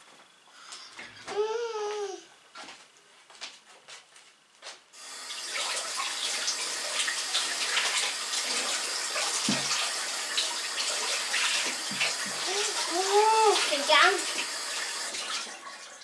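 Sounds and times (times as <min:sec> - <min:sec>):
water running into sink: 0:05.0 - 0:16.0.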